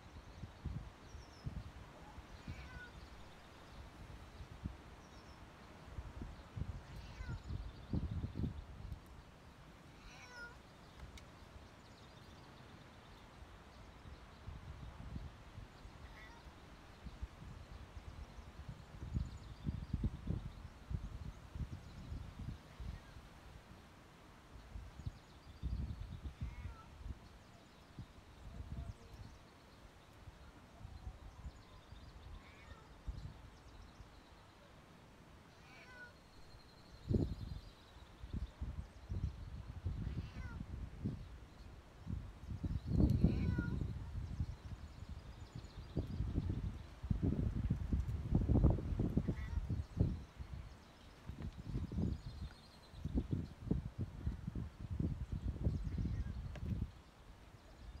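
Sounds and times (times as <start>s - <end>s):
cat meowing: 2.4s - 3.0s, 6.9s - 7.4s, 10.0s - 10.6s, 16.0s - 16.5s, 26.4s - 26.9s, 32.4s - 32.9s, 35.6s - 36.2s, 40.0s - 40.6s, 43.2s - 43.8s, 49.3s - 49.6s.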